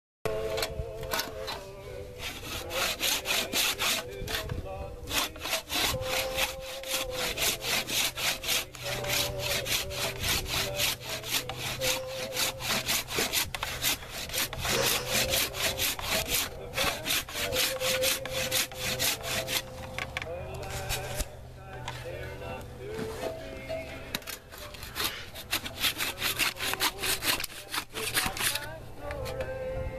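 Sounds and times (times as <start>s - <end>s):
handsaw cutting wood: 0.3s - 21.3s, 24.2s - 29.4s.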